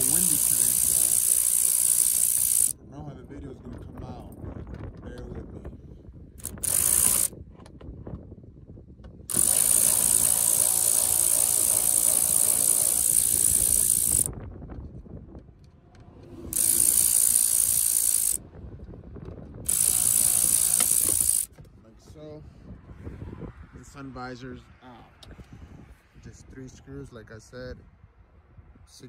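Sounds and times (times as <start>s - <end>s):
power ratchet whirring: 0.0s - 2.8s, 6.4s - 7.3s, 9.3s - 14.3s, 16.4s - 18.4s, 19.6s - 21.6s.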